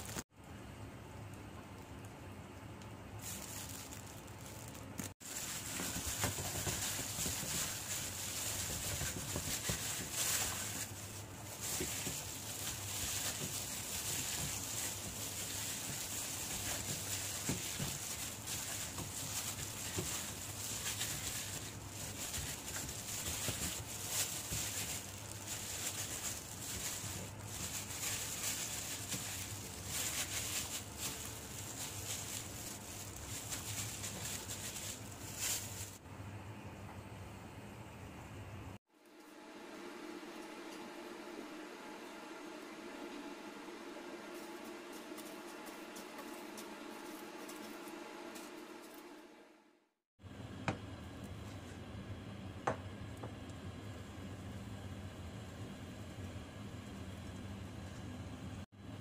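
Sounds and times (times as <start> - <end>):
plastic glove crinkling: 0.0 - 0.2, 2.9 - 36.0, 44.4 - 49.0
steady hiss and hum: 0.0 - 49.4.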